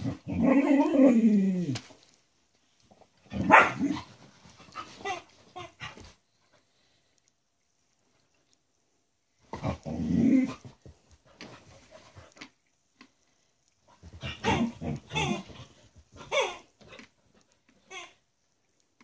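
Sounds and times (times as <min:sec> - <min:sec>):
dog growling: 0:00.0 - 0:01.8, 0:09.6 - 0:10.7
squeaky toy squeaking: 0:14.4 - 0:15.5, 0:17.9 - 0:18.2.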